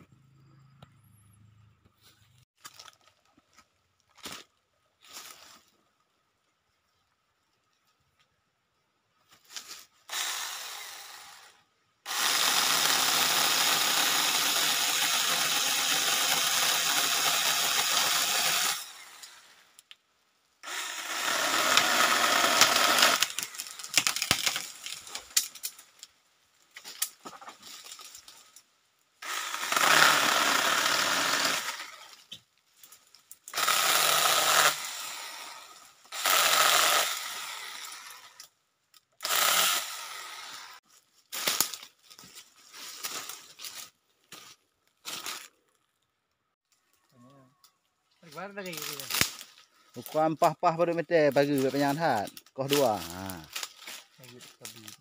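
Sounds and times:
mini chainsaw cutting wood: 10.1s - 19.9s, 20.6s - 25.8s, 29.2s - 32.4s, 33.4s - 38.6s, 39.2s - 40.8s.

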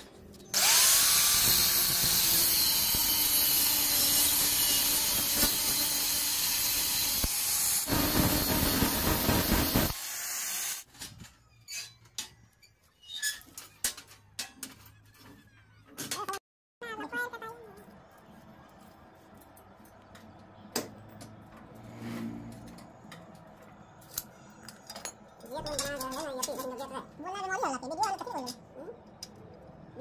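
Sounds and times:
angle grinder cutting steel: 0.5s - 10.9s.

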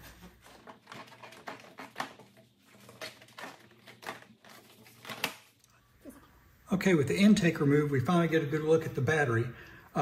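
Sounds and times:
plastic duct knocks and rustles: 0.0s - 5.6s.

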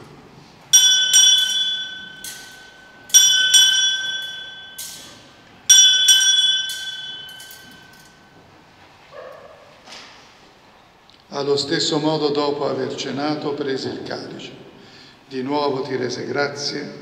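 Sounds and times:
altar bells ringing: 0.7s - 8.4s.

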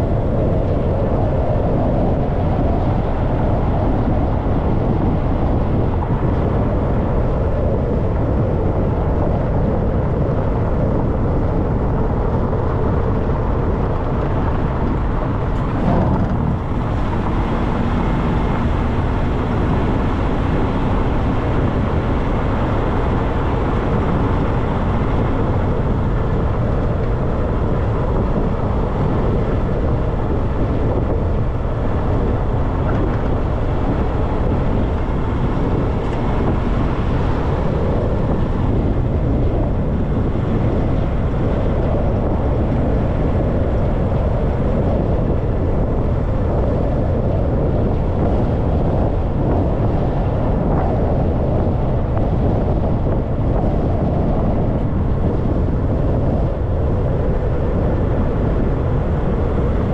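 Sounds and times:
road and tyre noise: 0.0s - 59.9s
wind buffeting microphone: 0.0s - 59.9s.

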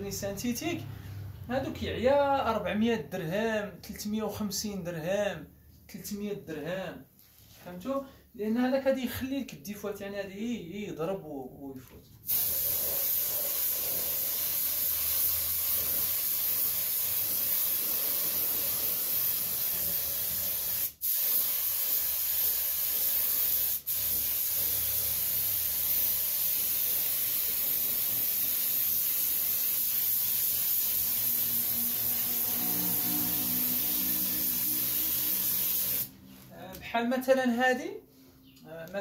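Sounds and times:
paint spray gun hissing: 12.3s - 36.1s.

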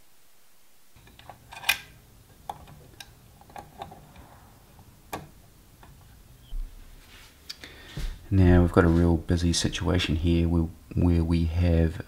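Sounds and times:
pliers clicking on metal: 1.0s - 1.9s.

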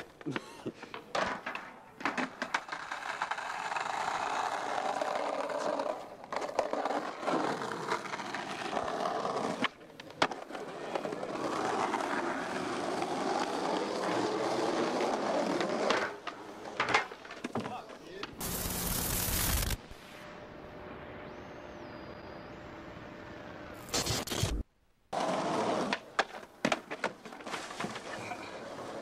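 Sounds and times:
skateboard clacks: 0.0s - 8.8s, 25.2s - 29.0s
skateboard wheels rumbling on asphalt: 1.2s - 17.7s, 25.1s - 29.0s.

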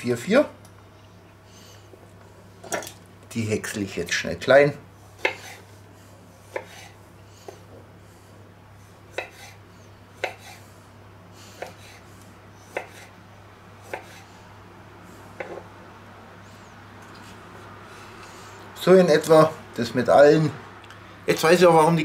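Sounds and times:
knife cutting on wooden board: 5.2s - 5.7s, 6.5s - 7.6s, 9.1s - 9.6s, 10.2s - 10.6s, 11.6s - 12.0s, 12.7s - 13.1s, 13.8s - 14.3s.

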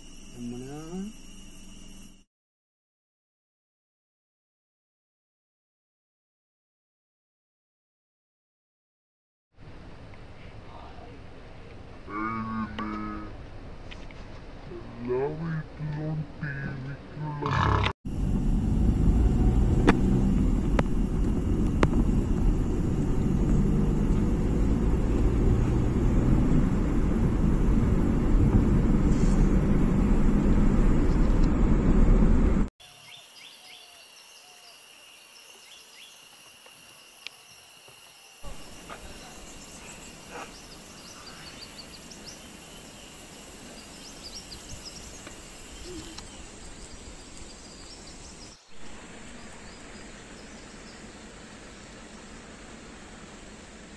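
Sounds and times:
insect drone: 0.0s - 2.3s, 17.6s - 53.9s
vehicle engine and road noise: 9.6s - 32.7s, 38.4s - 53.9s
faint bird calls: 45.8s - 46.4s.

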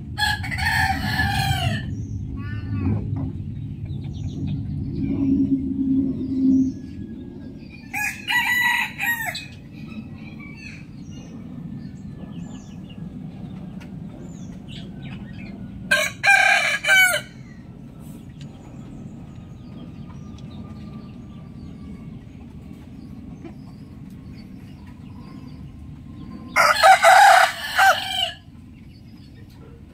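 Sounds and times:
rooster crowing: 0.2s - 1.9s, 7.9s - 9.6s, 15.9s - 17.4s, 26.6s - 28.5s.

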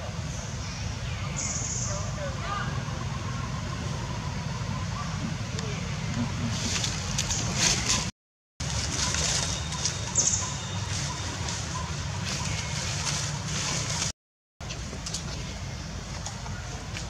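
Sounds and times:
dry leaves crackling underfoot: 6.4s - 17.0s.

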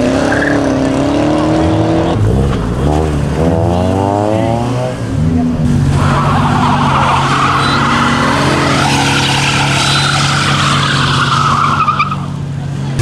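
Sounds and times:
truck engine: 0.0s - 13.0s
tyres squealing and skidding: 5.2s - 12.4s.

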